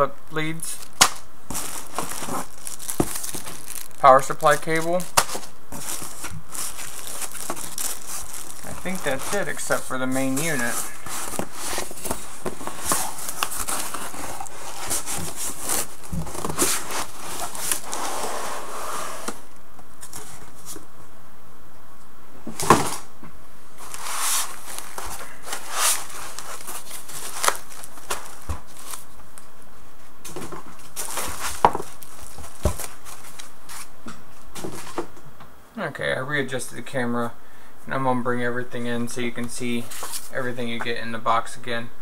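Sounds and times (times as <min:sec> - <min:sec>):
packaging crinkling and rustling: 0:00.7 - 0:19.4, 0:23.8 - 0:29.5, 0:30.2 - 0:33.9, 0:39.4 - 0:40.8.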